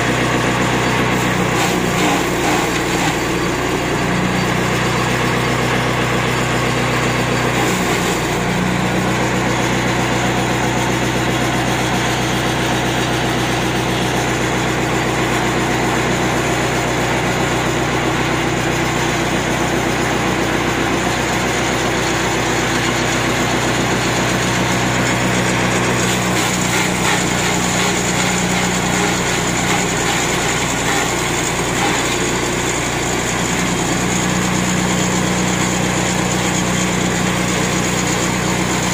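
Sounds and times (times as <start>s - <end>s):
chopper chopping fodder: 0.0s - 10.0s, 21.0s - 38.9s
small petrol engine running: 0.0s - 38.9s.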